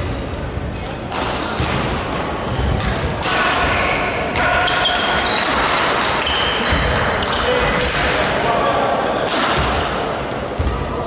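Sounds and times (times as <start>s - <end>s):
racket striking shuttlecock: 1.1s - 8.2s
shoes squeaking: 3.7s - 7.6s.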